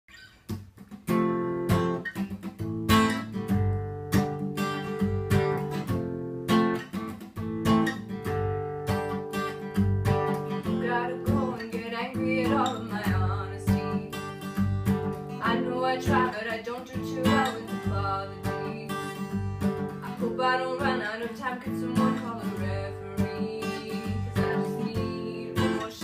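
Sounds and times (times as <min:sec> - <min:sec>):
acoustic guitar strumming: 0:00.1 - 0:26.0.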